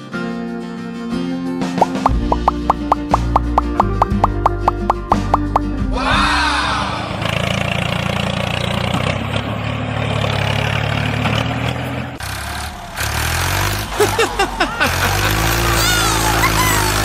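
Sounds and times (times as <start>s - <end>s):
tractor engine running: 7.0s - 17.0s.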